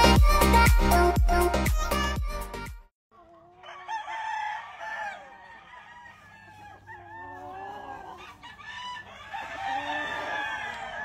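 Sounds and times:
hens clucking: 3.2s - 3.9s, 4.9s - 11.0s
roosters crowing: 3.4s - 11.0s.

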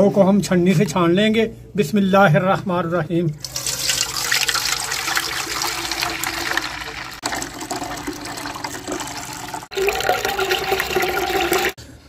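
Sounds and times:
juice pouring and splashing into pot: 3.4s - 11.8s.

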